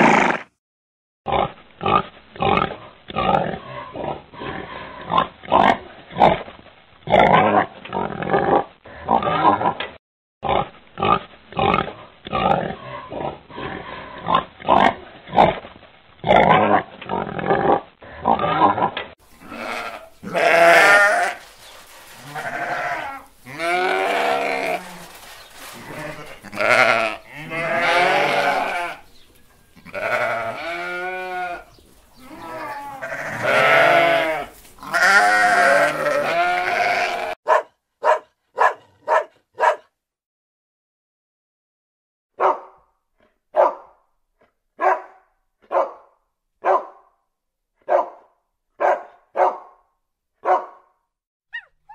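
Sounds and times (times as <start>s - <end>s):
pigs grunting: 0.0s - 0.5s, 1.3s - 21.4s, 22.2s - 29.0s
lamb bleating: 19.4s - 21.4s, 22.2s - 29.1s, 29.8s - 37.4s.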